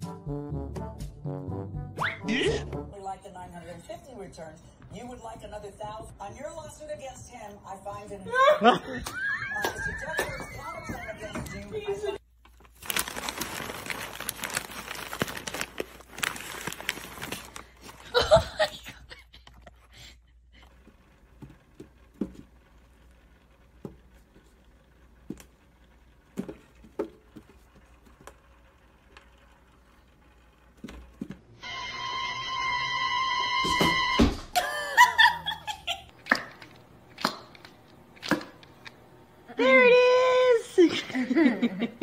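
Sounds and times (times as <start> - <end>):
paper bag rustling: 12.4 - 18.8.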